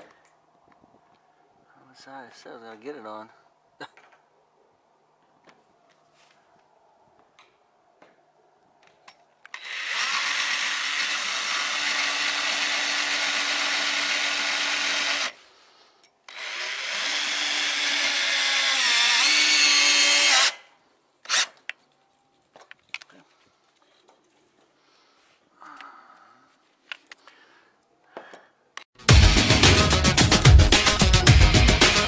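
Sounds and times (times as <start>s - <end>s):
cordless drill whining on steel: 9.5s - 15.4s, 16.3s - 21.8s.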